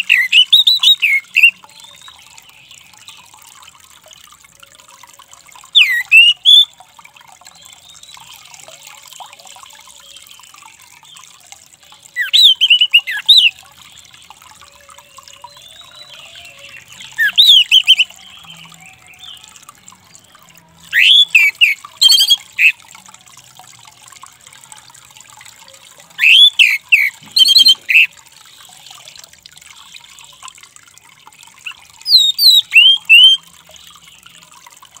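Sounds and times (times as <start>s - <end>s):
thrush singing whistled notes: 0.0s - 2.5s, 5.7s - 6.8s, 12.0s - 13.6s, 15.4s - 19.5s, 20.9s - 22.8s, 26.2s - 28.1s, 31.6s - 33.5s.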